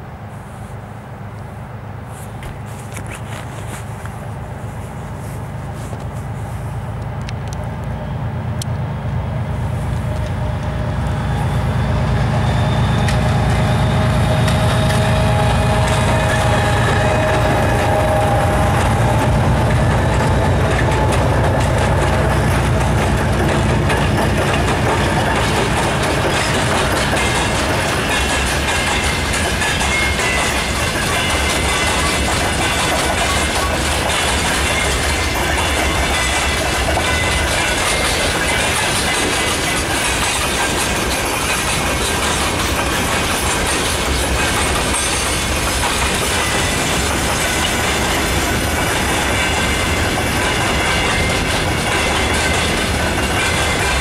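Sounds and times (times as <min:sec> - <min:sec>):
diesel locomotive engines rumbling: 0:00.0 - 0:54.0
freight wagons clattering over rail joints: 0:12.2 - 0:54.0.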